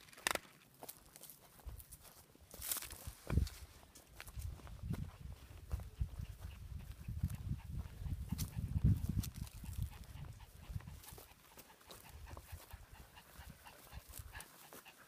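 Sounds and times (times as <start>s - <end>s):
steps through dry grass: 0.0s - 15.0s
dog panting: 5.2s - 15.0s.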